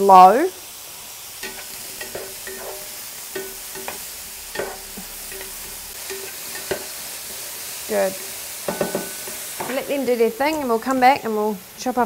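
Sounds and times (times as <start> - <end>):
mushrooms sizzling in a frying pan: 0.0 - 12.0
spatula scraping and tapping pan: 1.4 - 7.5, 8.6 - 11.2.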